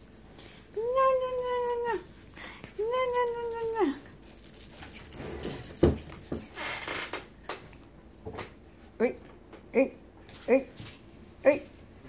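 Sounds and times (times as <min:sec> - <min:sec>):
toy rattle shaking: 0:00.0 - 0:08.3.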